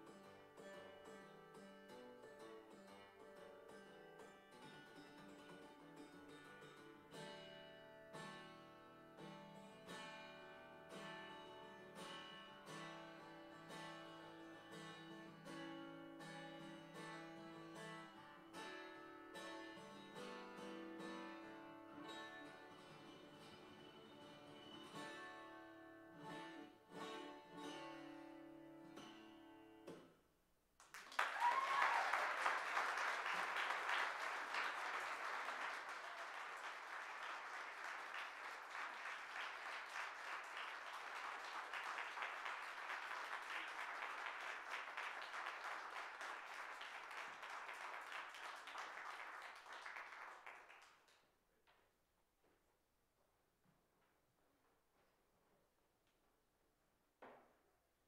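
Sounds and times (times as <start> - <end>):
acoustic guitar playing: 0.0 - 30.0
audience applauding: 30.8 - 51.2.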